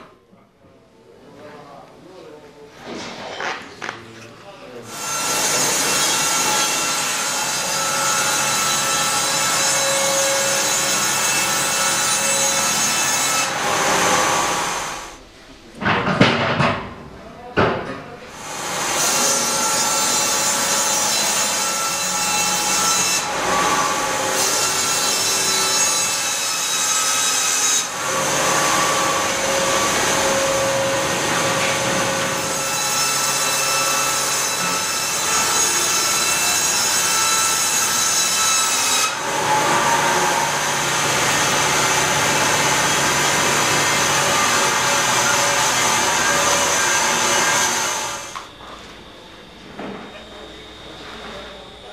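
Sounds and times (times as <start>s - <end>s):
band sawmill cutting log: 4.9s - 15.2s, 18.4s - 49.2s.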